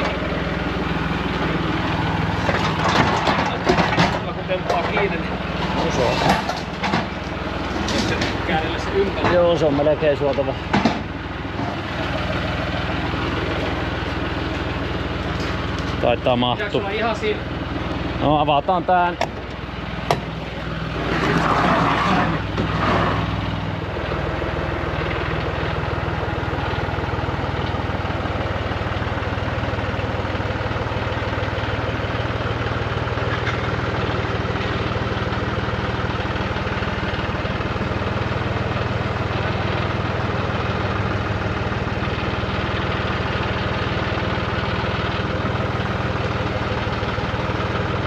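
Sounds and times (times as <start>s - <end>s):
tractor diesel engine running: 0.0s - 48.0s
loud clatter: 2.4s - 8.6s.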